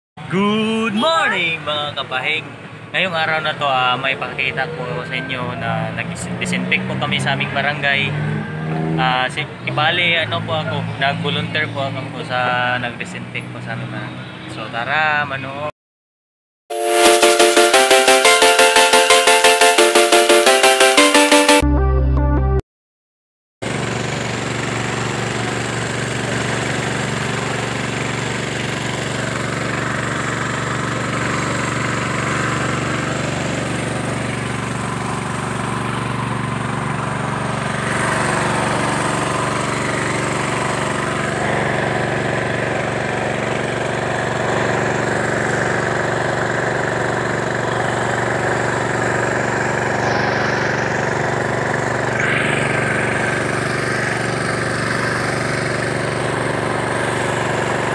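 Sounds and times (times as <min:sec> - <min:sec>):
engine droning: 0:23.7 - 0:57.9.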